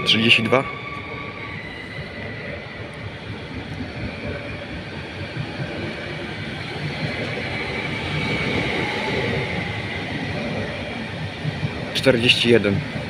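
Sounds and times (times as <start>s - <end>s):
train rolling slowly: 0.0s - 13.0s.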